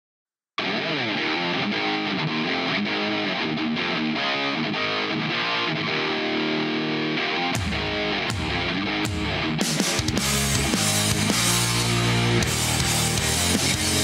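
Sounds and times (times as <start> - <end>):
rock music with electric guitar: 0.6 - 14.0
heavy bass beat: 7.6 - 14.0.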